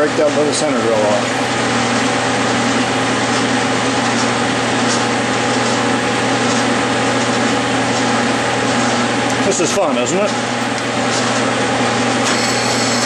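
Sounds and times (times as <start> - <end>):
metal lathe motor humming: 0.0 - 13.0
drill boring into metal bolt: 12.2 - 13.0.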